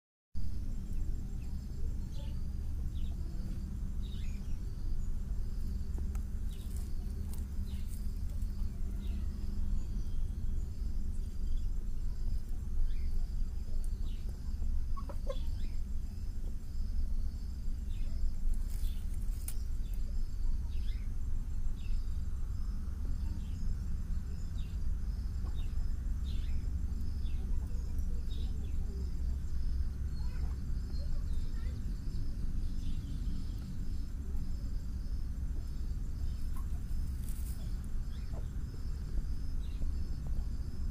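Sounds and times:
steady low rumble: 0.4s - 40.9s
hens clucking: 14.2s - 15.6s.

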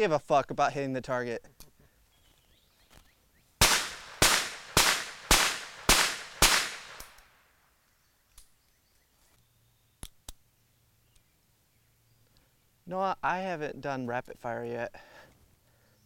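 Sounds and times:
sharp clicks: 3.6s - 7.3s.

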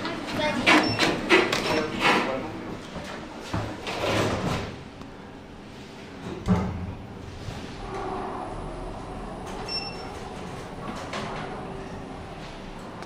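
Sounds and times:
lift doors sliding shut: 6.2s - 13.0s.

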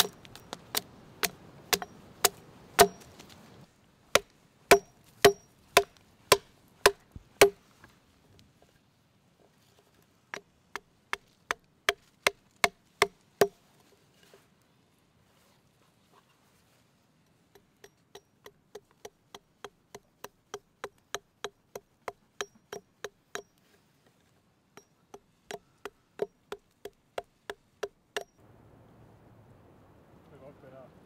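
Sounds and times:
hatchet chopping wood: 0.0s - 3.2s, 4.1s - 7.6s, 10.3s - 13.6s, 17.6s - 23.5s, 24.8s - 28.3s.

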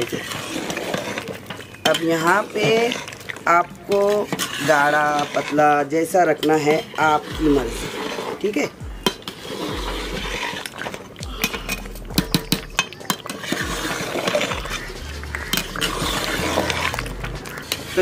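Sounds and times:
metal ladle clinking against pot: 1.0s - 9.7s, 10.3s - 14.9s.

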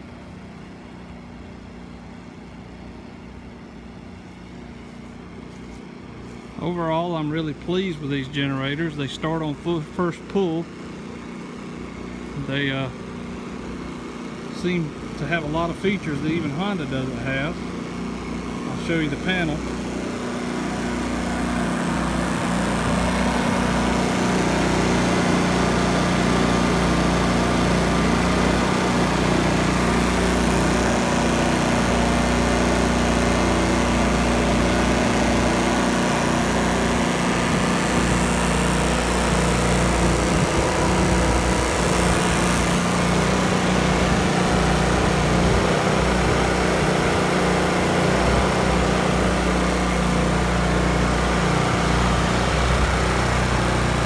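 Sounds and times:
generator engine drone: 0.0s - 54.0s.

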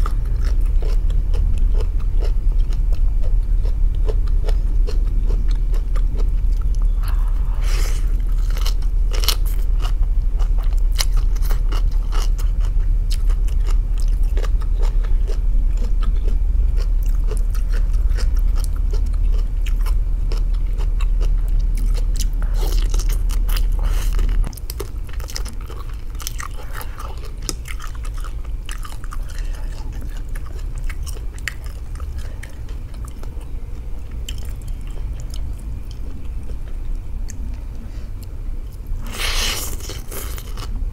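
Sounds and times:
chewing crunchy food: 0.0s - 40.9s
steady low hum: 0.0s - 40.9s.

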